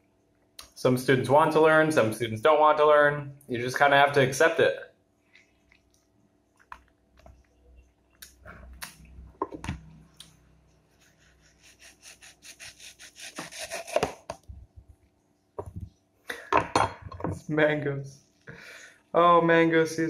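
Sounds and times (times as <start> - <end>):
knife sawing through fruit: 10.9 - 14.3.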